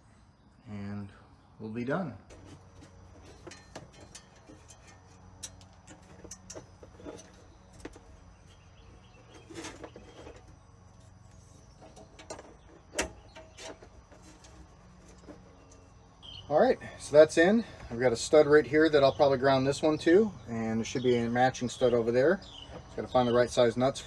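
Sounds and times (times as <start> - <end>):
clicks and rustles of wiring: 2.3 - 16.0
faint bird chirps: 15.0 - 17.9.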